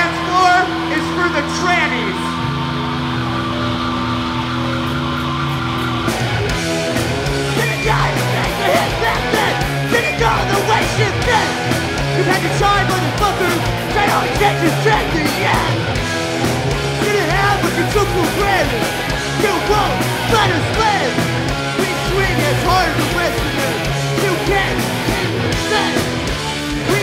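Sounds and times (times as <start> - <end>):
bass guitar: 0.0 - 27.0
distorted electric guitar: 0.0 - 27.0
drums: 0.0 - 27.0
person yelling into a microphone: 7.6 - 11.6, 25.6 - 26.1.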